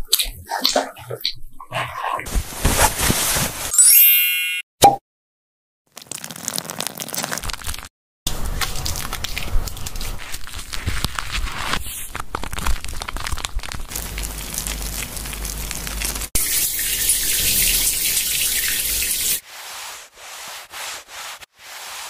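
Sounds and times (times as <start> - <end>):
hands scrubbing wet fur: 17.6 - 22.0.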